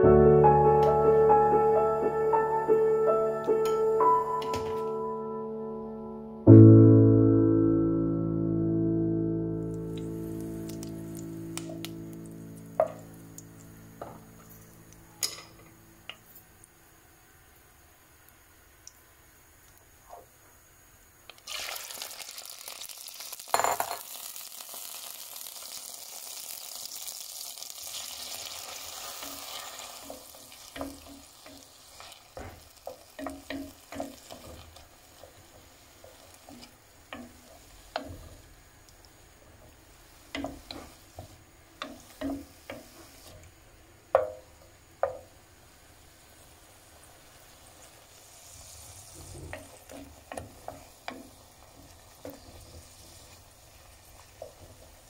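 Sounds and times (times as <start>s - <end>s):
mushrooms sizzling in hot oil: 8.0s - 55.0s
wooden spoon scraping a pan: 28.9s - 38.5s, 39.6s - 43.5s, 47.8s - 55.0s.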